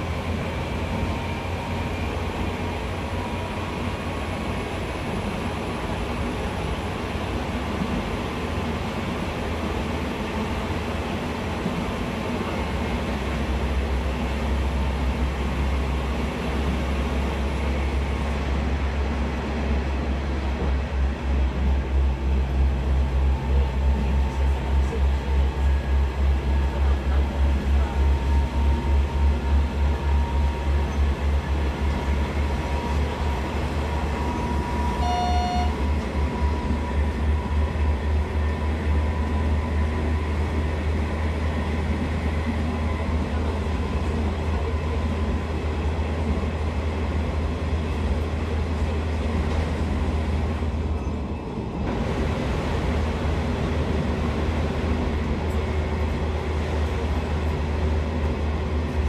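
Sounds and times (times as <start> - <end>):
train carriage rumble: 0.0 - 59.0
short beep: 34.7 - 35.8.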